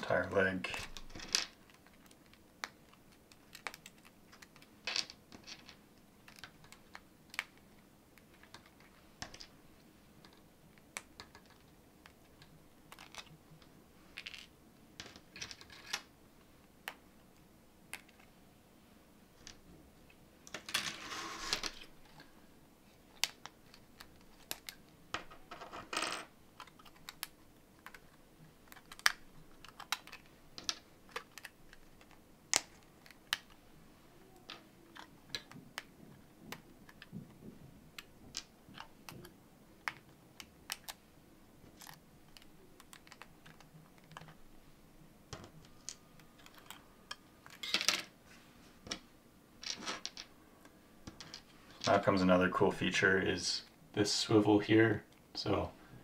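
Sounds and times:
plastic frames rustling: 20.4 - 25.8, 26.5 - 41.0, 45.3 - 52.1
plastic parts snapping: 26.6 - 33.6.

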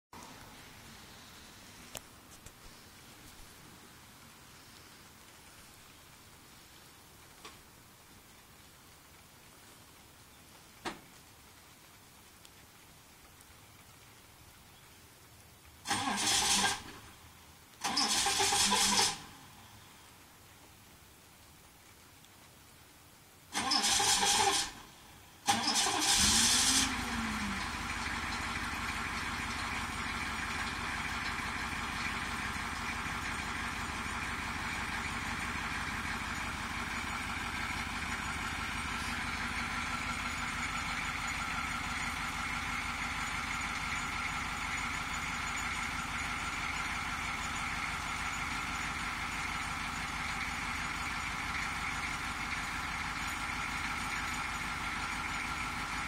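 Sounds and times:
diesel engine idling: 15.8 - 17.1, 17.8 - 19.5, 23.5 - 56.0
starter motor cranking: 15.9 - 17.0, 17.8 - 19.3, 23.6 - 24.8, 25.5 - 56.0.

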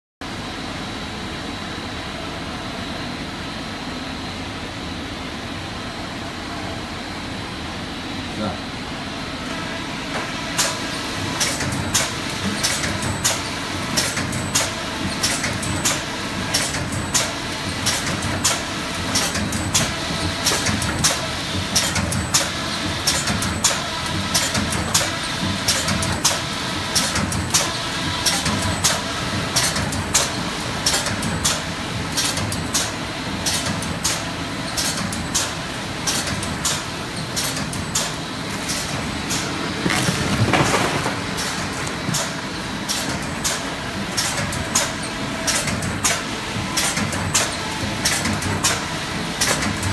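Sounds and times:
machine conveyors droning: 0.3 - 49.9.

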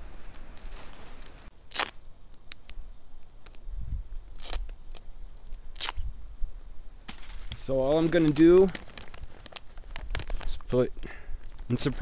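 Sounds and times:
tape ripping off a roll: 0.0 - 2.8, 4.3 - 6.1, 7.1 - 10.7
handling rustle: 0.0 - 6.1, 7.1 - 12.0.

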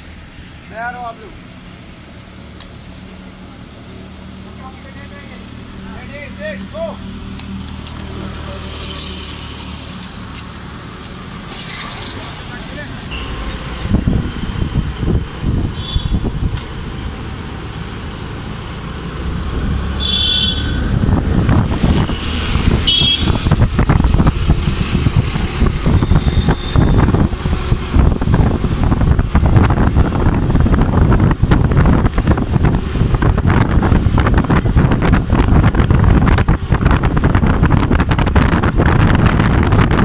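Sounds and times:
road traffic: 0.0 - 40.0
wind rumbling on microphone: 9.4 - 40.0
vehicle horn toots: 15.7 - 16.3, 20.0 - 20.9, 22.8 - 23.5.

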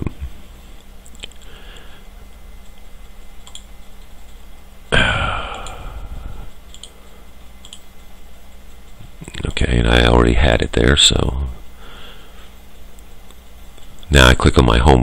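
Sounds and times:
computer mouse clicks: 2.6 - 4.4, 5.5 - 5.8, 6.6 - 7.0, 7.6 - 7.9.

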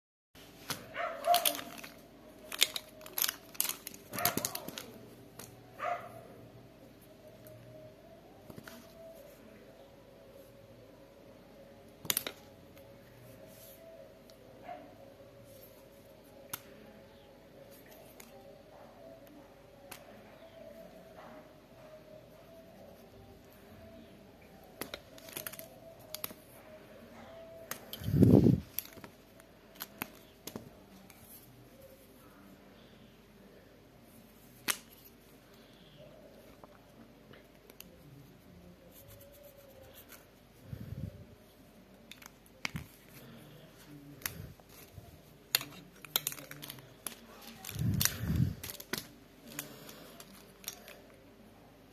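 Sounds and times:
plastic pens clicking: 0.7 - 5.6, 12.0 - 12.9, 16.4 - 16.8, 24.7 - 26.6, 27.6 - 31.4, 41.9 - 51.2
muffled handling sound: 8.3 - 9.6, 22.4 - 33.2, 34.0 - 51.6.

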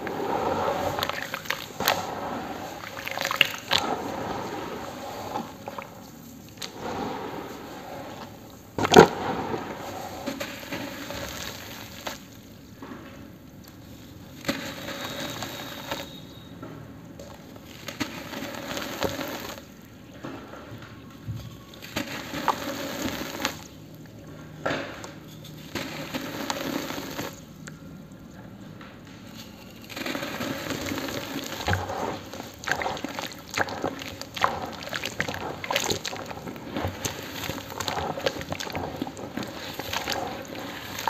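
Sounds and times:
wet cement crunching in hands: 0.2 - 7.0, 29.7 - 41.0.

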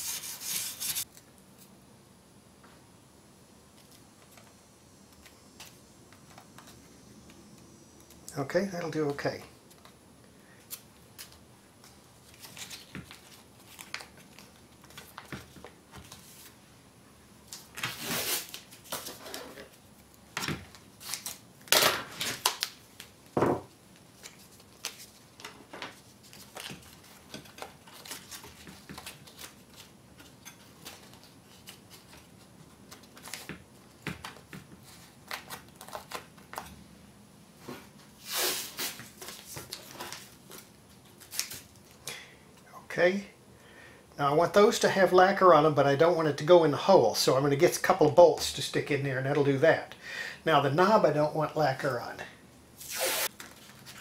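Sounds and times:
tape rustling and crinkling: 10.6 - 16.6, 17.5 - 23.3, 23.9 - 36.8, 38.2 - 42.0, 52.8 - 54.0.

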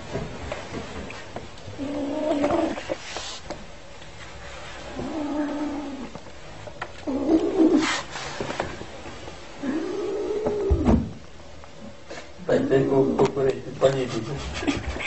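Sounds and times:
kitten growling: 1.8 - 3.0, 4.9 - 6.2, 7.0 - 8.0, 9.6 - 10.9.

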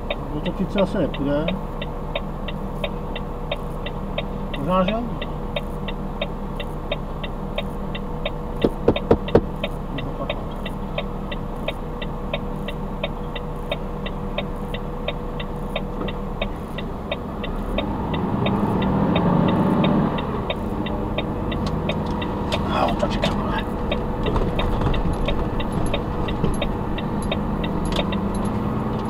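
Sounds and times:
diesel truck engine: 0.0 - 29.0
turn signal relay ticking: 0.0 - 29.0
sharp knocks: 8.6 - 9.7, 23.2 - 28.2.

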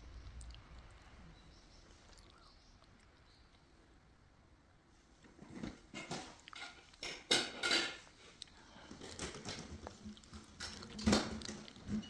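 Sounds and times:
cat chewing fish: 8.1 - 12.0.

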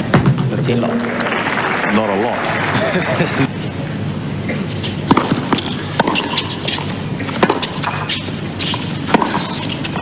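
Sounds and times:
racquets hitting tennis ball: 4.8 - 10.0.

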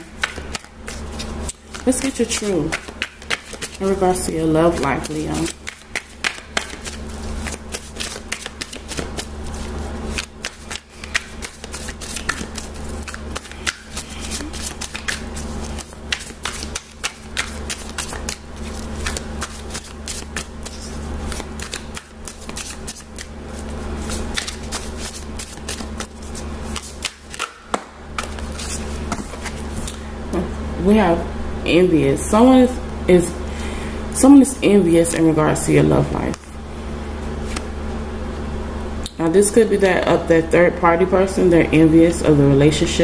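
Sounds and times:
cards being shuffled: 0.0 - 30.0, 37.4 - 37.7
low steady hum: 0.0 - 43.0.

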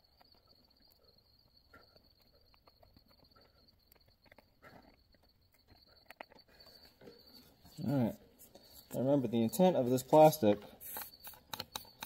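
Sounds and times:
faint clicks and handling noises: 0.0 - 12.0
faint high-pitched tone: 6.6 - 12.0.

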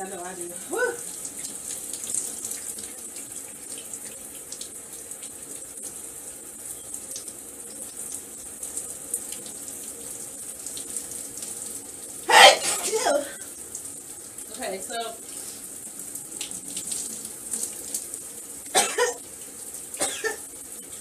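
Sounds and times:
faint water splashing: 7.0 - 21.0
water spray hissing: 12.3 - 13.4.

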